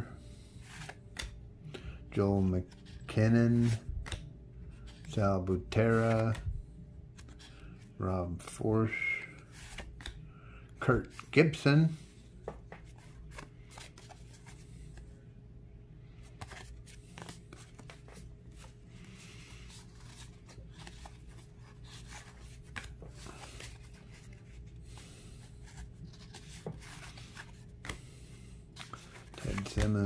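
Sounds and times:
faint steady hum: 0.0s - 30.0s
cards scraping and clicking: 0.6s - 1.8s, 2.4s - 6.4s, 8.9s - 10.2s, 12.5s - 15.1s, 16.2s - 28.1s, 28.7s - 30.0s.

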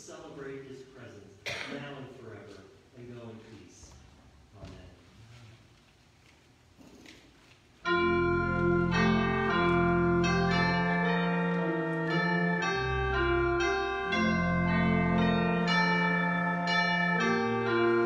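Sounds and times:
organ music: 7.8s - 18.0s.

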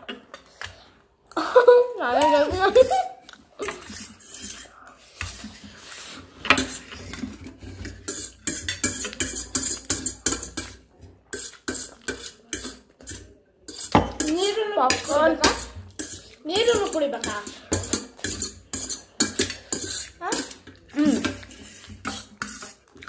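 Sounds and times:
forks clinking on steel plates: 7.8s - 22.7s.

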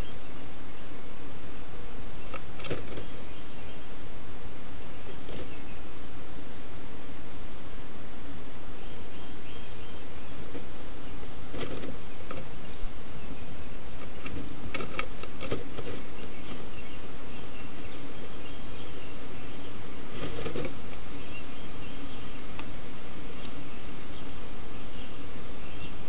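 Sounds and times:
steady hiss: 0.0s - 26.0s
bird rustling nest material: 2.0s - 3.3s, 4.0s - 6.0s, 10.0s - 26.0s
bird scratching wooden box: 2.3s - 3.1s, 5.0s - 5.6s, 10.4s - 12.5s, 14.0s - 16.7s, 20.1s - 21.0s.

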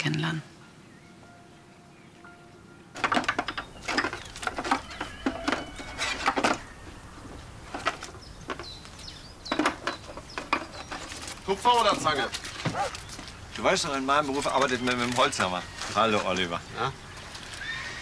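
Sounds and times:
birds chirping: 0.0s - 18.0s
footsteps on pavement: 6.8s - 14.4s.

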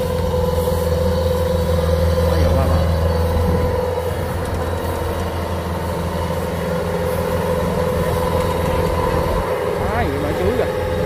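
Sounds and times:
combine harvester diesel engine running: 0.0s - 11.0s.

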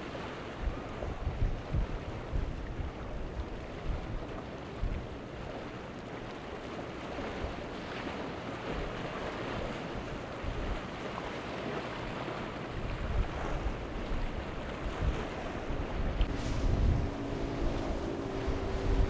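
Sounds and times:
sea water washing around rocks: 0.0s - 19.0s
wind gusting on microphone: 0.6s - 5.1s, 12.7s - 19.0s.

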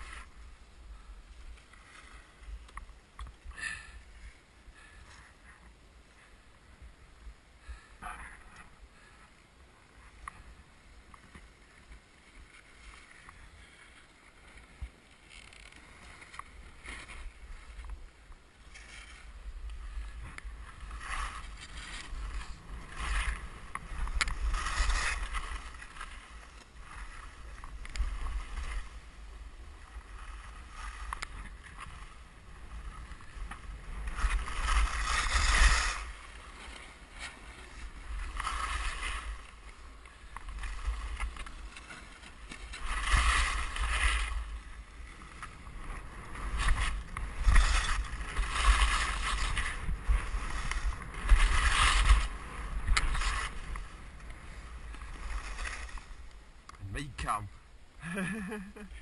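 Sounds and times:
skis scraping over snow: 0.0s - 57.5s
wind buffeting microphone: 42.7s - 57.0s.

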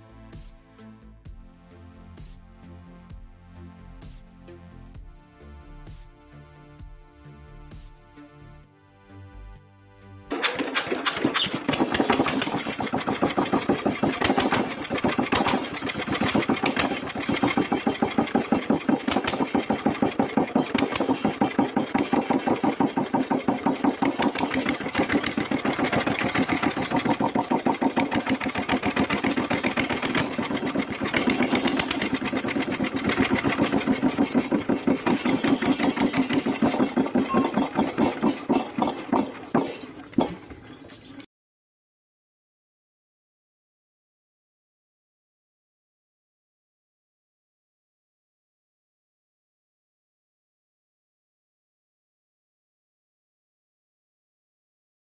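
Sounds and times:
diesel engine running: 10.3s - 41.2s.

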